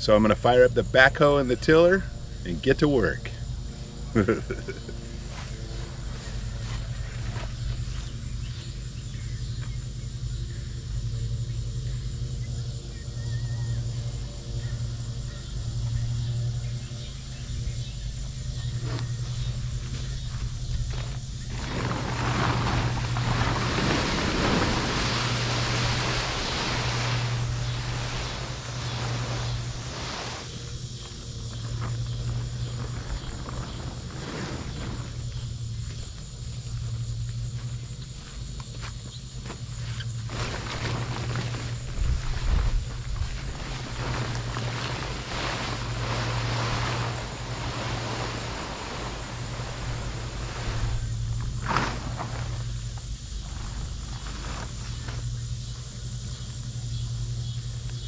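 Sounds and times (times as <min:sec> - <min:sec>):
plastic tarp rustling on grass: 0:04.2 - 0:08.9, 0:18.4 - 0:56.6.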